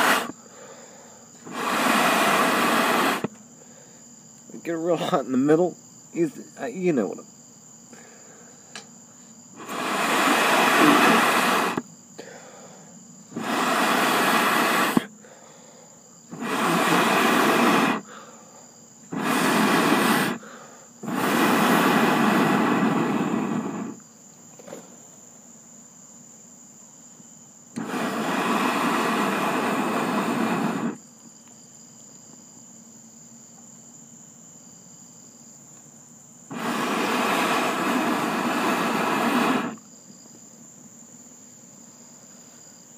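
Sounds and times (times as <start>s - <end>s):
person blowing on charcoal: 0.0s - 4.1s, 9.5s - 24.0s, 27.7s - 31.1s, 36.5s - 39.9s
crickets chirring: 0.0s - 42.9s.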